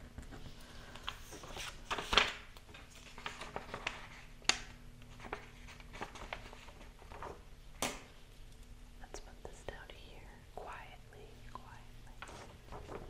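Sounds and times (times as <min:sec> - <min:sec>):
paper rustling: 0:00.2 - 0:08.0, 0:12.2 - 0:13.0.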